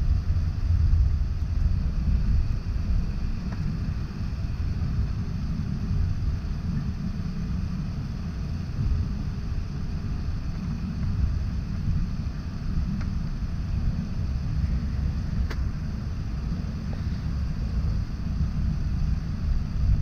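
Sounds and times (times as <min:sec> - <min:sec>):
jet engines low rumble: 0:00.0 - 0:20.0
wheels rolling on taxiway: 0:00.0 - 0:20.0
faint ticks: 0:12.9 - 0:13.2, 0:15.4 - 0:15.7.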